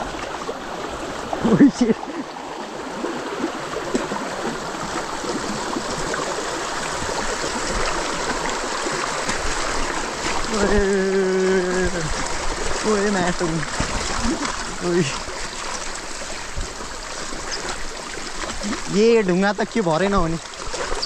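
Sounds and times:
water rushing: 0:00.0 - 0:21.0
bike tyres splashing: 0:03.0 - 0:21.0
person calling out: 0:10.5 - 0:12.1.

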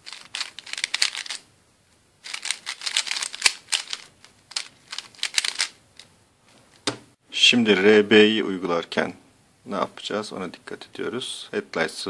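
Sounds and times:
puzzle cube clicking as turned: 0:00.0 - 0:01.4, 0:02.2 - 0:06.1.

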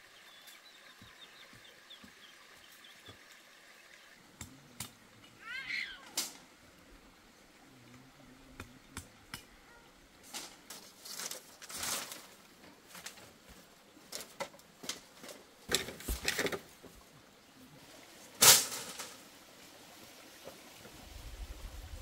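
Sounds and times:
bamboo poles knocking and rattling: 0:10.2 - 0:17.0, 0:18.4 - 0:19.2
clicks and rustles: 0:14.1 - 0:16.9.

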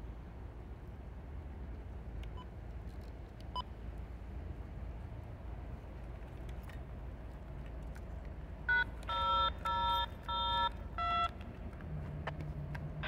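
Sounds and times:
touch-tone dialling beeps: 0:08.7 - 0:11.4.

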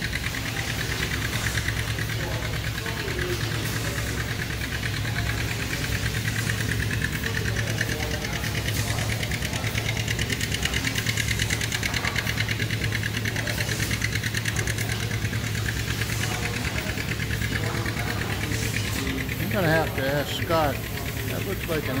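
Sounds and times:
constant low hum: 0:00.0 - 0:22.0
fast regular ticking: 0:00.0 - 0:22.0
steam engine clattering: 0:00.0 - 0:22.0.

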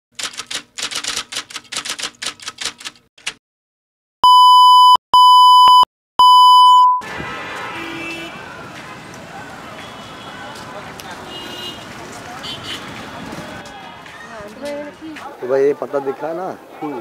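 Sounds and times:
loud electronic beeps: 0:04.2 - 0:07.0
noisy outdoor background: 0:06.3 - 0:17.0.

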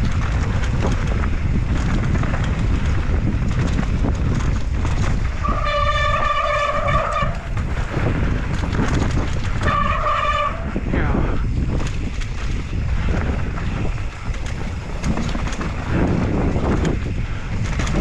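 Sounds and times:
bike rattling over rough trail: 0:00.0 - 0:18.0
wind rushing over microphone: 0:00.0 - 0:18.0
disc brakes squealing: 0:05.4 - 0:07.6.

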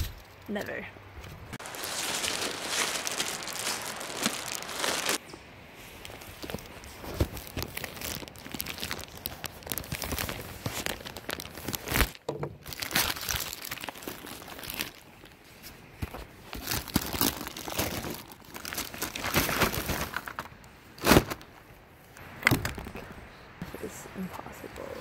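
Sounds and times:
plastic packaging crinkling and tearing: 0:01.6 - 0:05.2, 0:06.0 - 0:15.4, 0:16.0 - 0:21.5.

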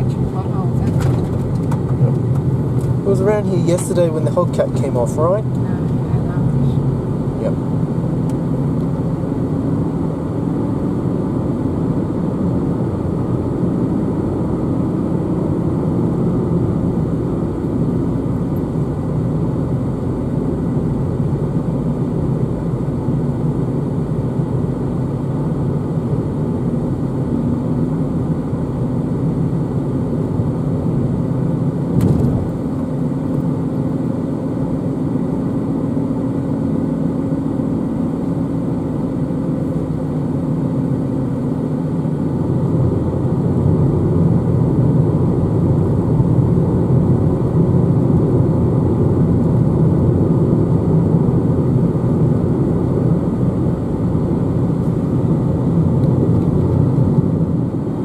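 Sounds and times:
car driving at highway speed: 0:00.0 - 0:58.0
brief knock: 0:32.0 - 0:32.4.

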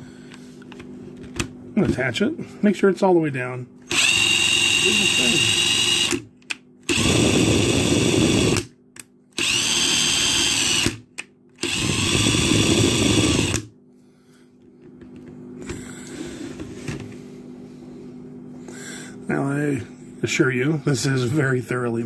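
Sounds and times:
power drill motor whine: 0:03.8 - 0:08.7, 0:09.4 - 0:11.0, 0:11.6 - 0:13.7.

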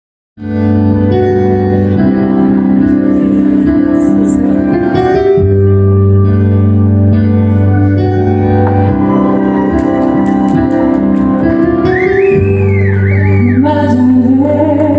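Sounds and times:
keyboard playing sustained chords: 0:00.4 - 0:14.9.

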